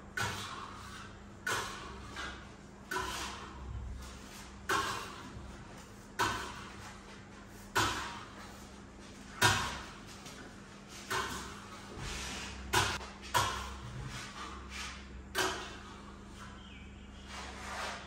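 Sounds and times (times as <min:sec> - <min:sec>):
trowels scraping wall panel: 0:00.2 - 0:07.0, 0:17.2 - 0:18.0.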